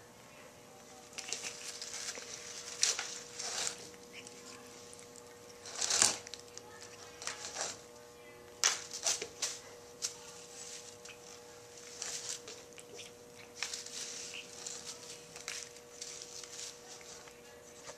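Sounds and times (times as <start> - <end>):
faint steady hum: 0.0 - 17.9
broom bristles rustling and scratching: 1.2 - 4.9, 8.8 - 12.7, 13.5 - 17.9.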